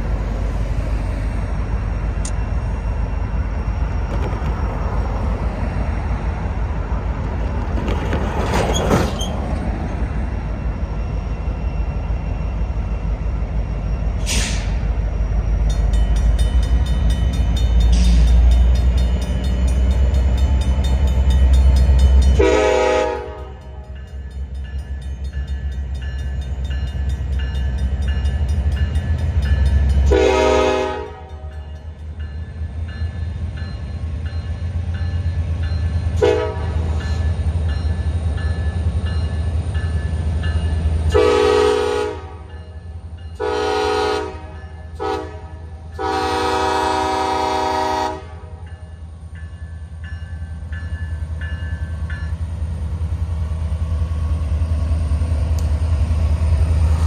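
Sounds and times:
crossing warning bell dinging: 9.2 - 52.8
locomotive air horn blasts: 22.4 - 23.8, 30.1 - 31.5, 36.2 - 36.9, 41.1 - 42.5, 43.4 - 48.6.

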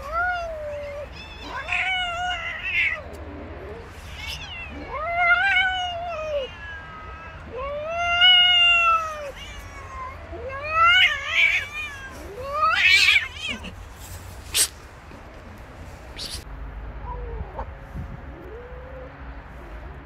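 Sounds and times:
cats yowling in a fight: 0.0 - 14.8.

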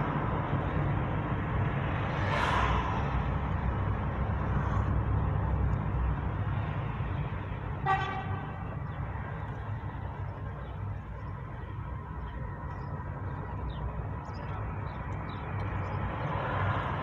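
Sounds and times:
car engine and road rumble: 0.0 - 17.0
car horn: 7.8 - 8.8.

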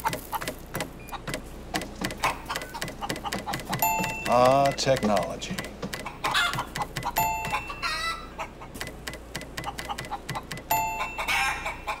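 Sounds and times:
rapid tapping clicks: 0.0 - 7.6, 8.8 - 10.8
chicken clucking: 0.0 - 12.0
chime ringing: 3.8 - 4.8, 7.2 - 8.2, 10.7 - 11.7.

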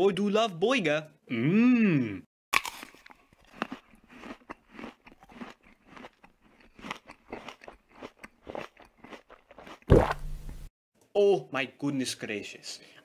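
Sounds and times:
crunchy chewing of a burger: 2.6 - 9.9
wet mouth sounds: 2.6 - 10.3.

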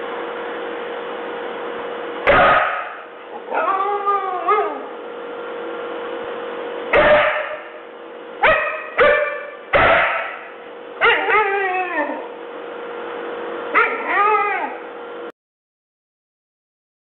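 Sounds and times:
husky barking and howling: 2.3 - 5.0, 8.4 - 10.4, 11.0 - 12.3, 13.7 - 14.8.

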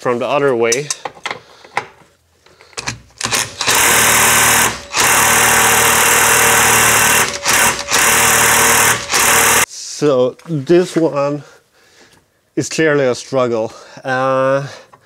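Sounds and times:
impact wrench hammering: 2.8 - 9.7.

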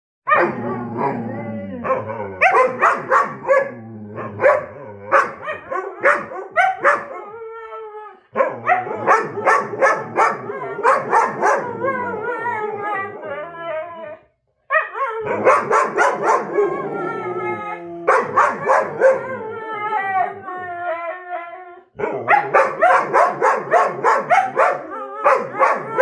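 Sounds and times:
huskies howling and yipping: 0.3 - 21.5, 22.2 - 26.0.

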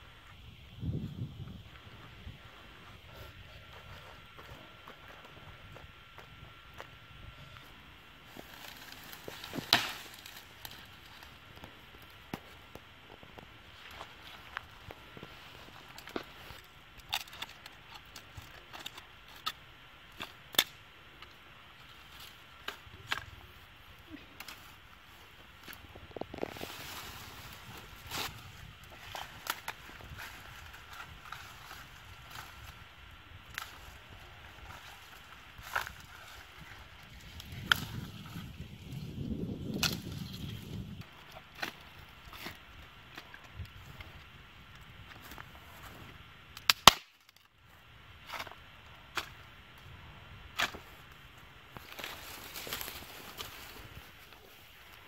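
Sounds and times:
bare feet walking through grass: 6.8 - 16.7, 24.2 - 32.8, 51.7 - 55.0
dry sticks crackling and snapping: 7.6 - 45.9, 46.5 - 47.6, 50.5 - 55.0.

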